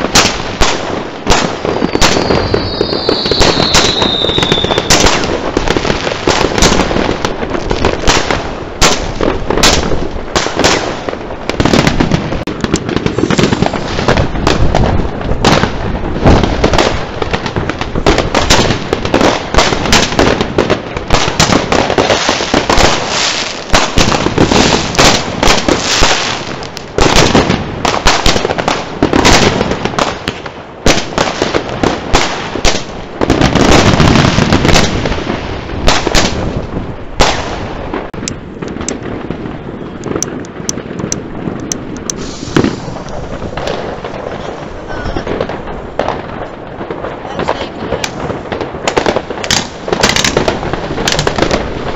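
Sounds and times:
fireworks bangs and crackles: 0.0s - 51.9s.

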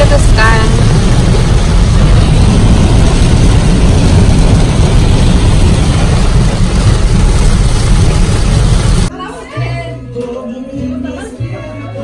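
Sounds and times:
rain on car windshield: 0.0s - 9.1s
tyres and engine rumbling: 0.0s - 9.1s.

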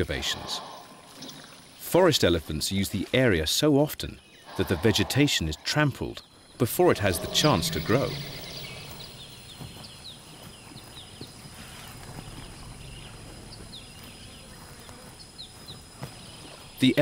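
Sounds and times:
high insect whine: 4.5s - 10.0s.

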